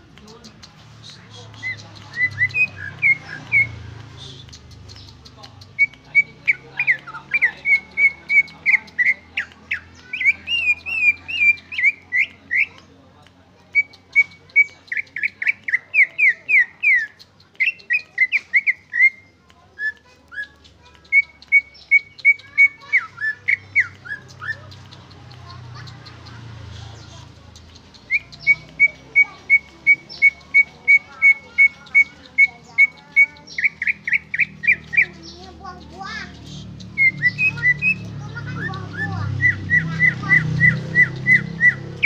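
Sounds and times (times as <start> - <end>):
bird singing whistled notes: 27.7 - 42.0.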